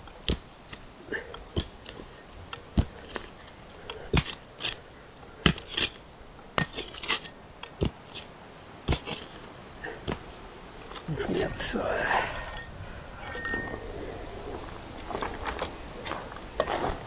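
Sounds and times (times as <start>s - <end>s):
shovel blade scraping soil: 3.1s - 6.0s, 6.6s - 8.3s
shovel striking soil: 4.1s - 4.8s, 6.6s - 9.4s.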